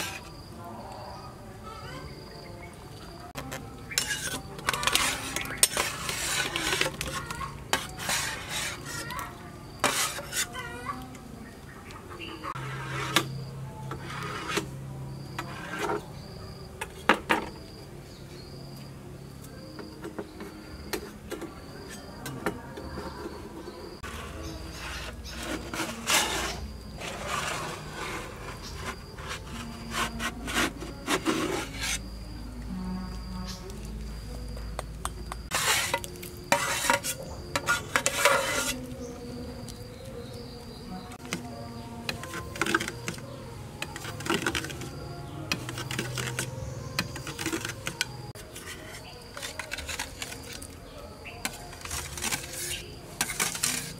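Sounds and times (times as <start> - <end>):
knife scraping metal pots: 0.0 - 0.4, 3.8 - 10.7, 12.3 - 16.1, 20.1 - 32.1, 35.5 - 39.2, 41.2 - 50.8, 51.4 - 53.9.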